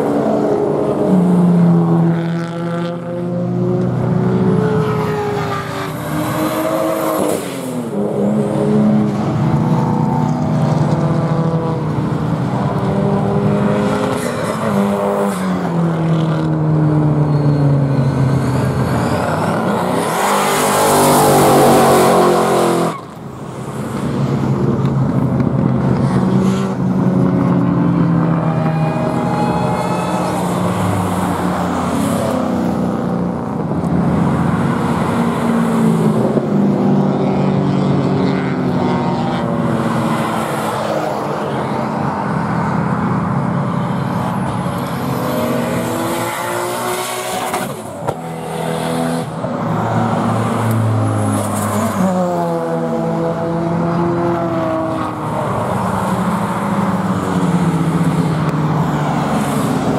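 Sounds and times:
car engines revving and passing: 0:00.0 - 0:59.9
tyres squealing: 0:28.4 - 0:31.1.

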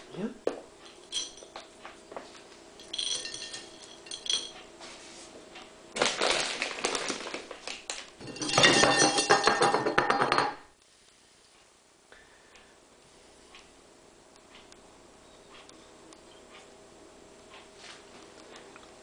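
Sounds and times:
dry pet food rustling: 0:06.0 - 0:08.1
ceramic plate clinking: 0:08.2 - 0:10.6.

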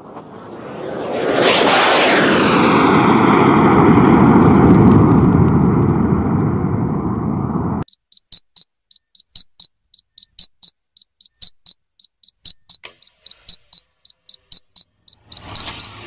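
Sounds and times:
rapid high-pitched electronic beeping: 0:07.9 - 0:16.0.

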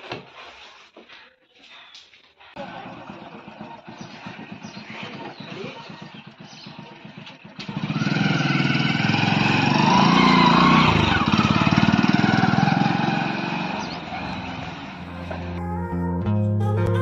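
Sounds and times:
motorcycle engine starting and revving: 0:02.6 - 0:15.6.

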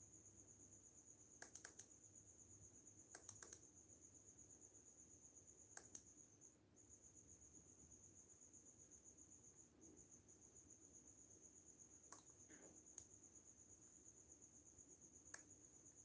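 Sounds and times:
cricket trilling: 0:00.0 - 0:16.0
light clicks: 0:01.4 - 0:01.9, 0:03.1 - 0:03.6, 0:05.7 - 0:06.1, 0:12.1 - 0:13.1, 0:15.3 - 0:15.5.

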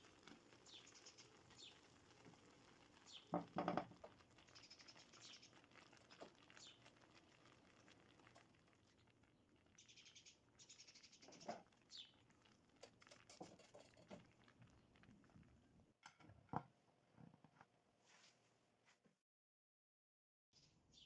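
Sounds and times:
pudding crackling and sizzling in pan: 0:00.0 - 0:15.6.

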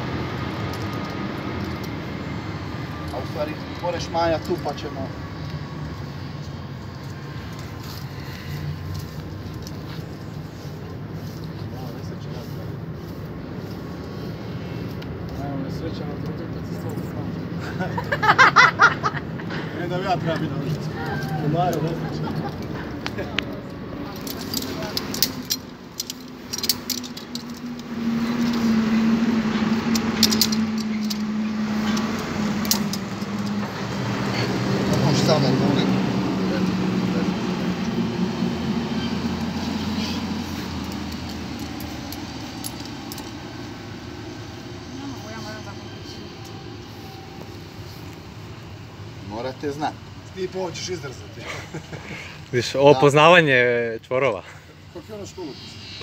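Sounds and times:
climbing rope and carabiners clicking: 0:00.0 - 0:18.2, 0:19.6 - 0:56.0
vehicle engine hum: 0:00.0 - 0:56.0
metal climbing gear clinking: 0:00.4 - 0:02.2, 0:06.8 - 0:10.6, 0:20.4 - 0:35.4, 0:39.0 - 0:43.8.

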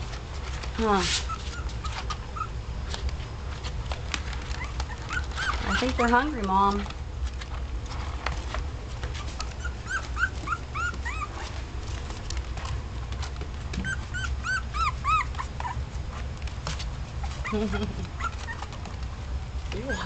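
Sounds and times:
steady low hum: 0:00.0 - 0:20.0
puppies squeaking and whimpering: 0:01.0 - 0:02.6, 0:04.3 - 0:06.4, 0:09.0 - 0:11.6, 0:13.7 - 0:19.0, 0:19.7 - 0:20.0.

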